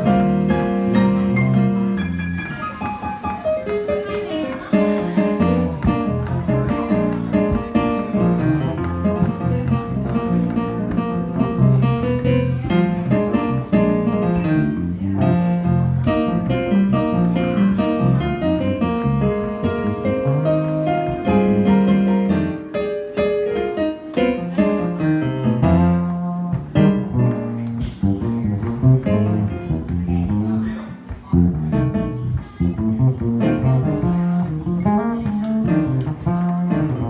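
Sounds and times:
jazz piano: 0:00.0 - 0:37.0.

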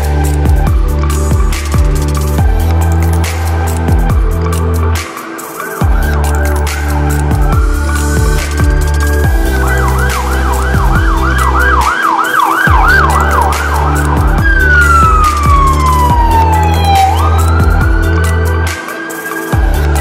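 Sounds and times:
electronic music with heavy bass: 0:00.0 - 0:20.0
police siren yelp and wail: 0:05.1 - 0:20.0.

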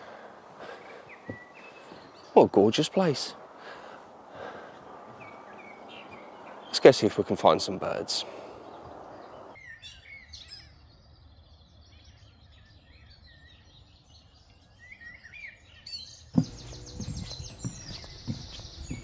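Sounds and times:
footsteps on wooden boardwalk: 0:00.0 - 0:02.3, 0:03.4 - 0:06.4, 0:16.4 - 0:19.0
small birds chirping: 0:00.0 - 0:19.0
bird trill: 0:08.6 - 0:19.0.

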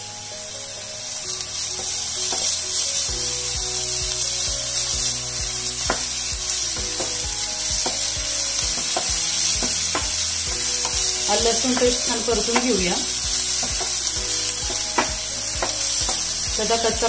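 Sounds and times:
onions sizzling in hot oil: 0:00.0 - 0:17.0
wooden spatula scraping a pan: 0:04.1 - 0:17.0.

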